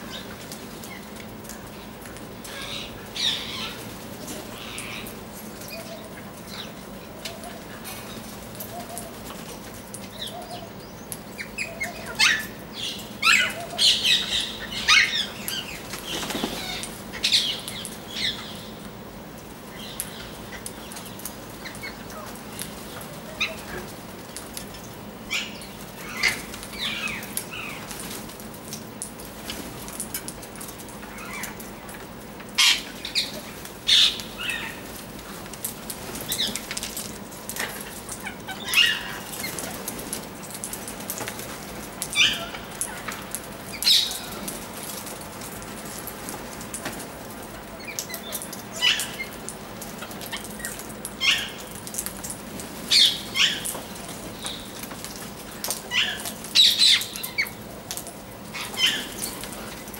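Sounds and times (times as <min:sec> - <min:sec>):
wings flapping: 0:15.5 - 0:17.1.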